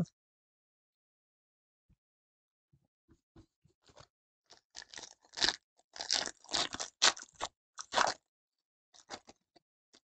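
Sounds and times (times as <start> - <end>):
foil wrapper crinkling and tearing: 4.5 - 8.2.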